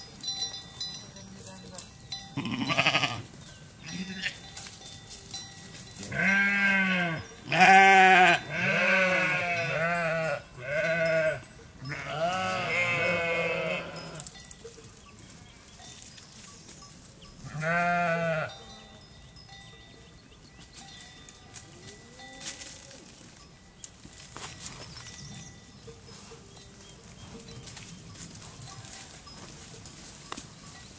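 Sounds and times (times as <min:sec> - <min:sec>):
sheep bleating: 0:02.4 - 0:04.4, 0:06.1 - 0:14.2, 0:17.5 - 0:18.5.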